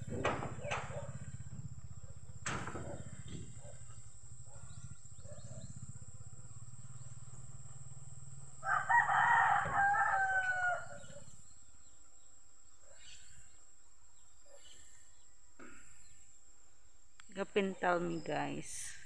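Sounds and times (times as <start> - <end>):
rooster crowing: 8.6 - 11.3.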